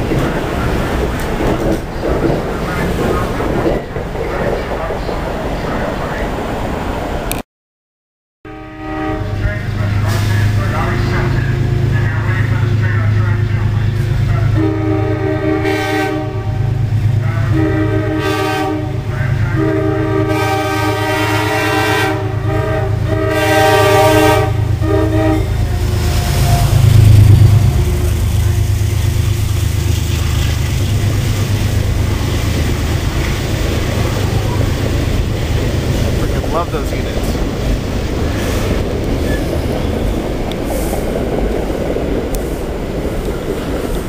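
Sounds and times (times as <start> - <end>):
train passing rumble: 0.0 - 7.4, 8.5 - 44.0
locomotive air horn blasts: 8.5 - 12.0, 14.3 - 29.4.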